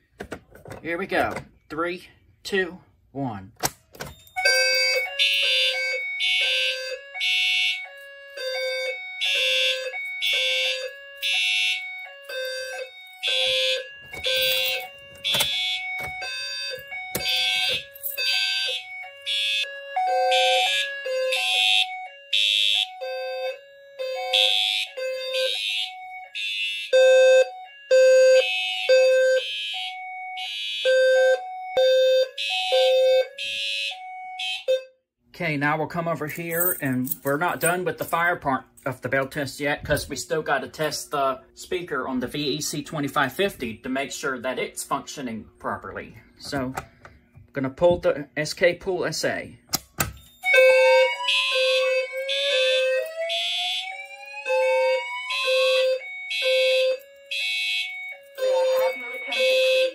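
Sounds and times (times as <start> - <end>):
electronic alarm tones: 4.3 - 35.0, 50.4 - 59.9
buzzy fire alarm horn: 4.3 - 35.1, 50.4 - 59.9.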